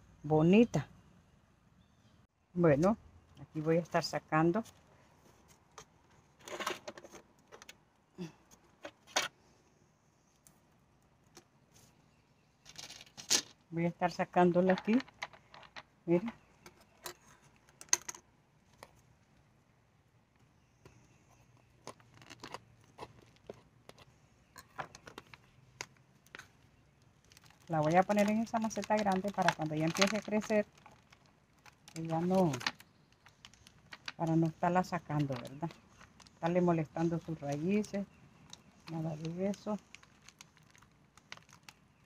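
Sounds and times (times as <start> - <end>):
soil rustling: 20.8 - 42.0.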